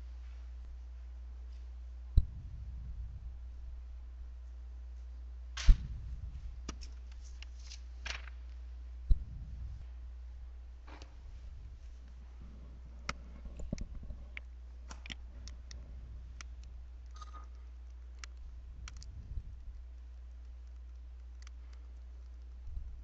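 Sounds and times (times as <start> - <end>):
steady low hum: 0.0 - 23.0
computer mouse clicking: 13.0 - 15.8, 16.4 - 22.7.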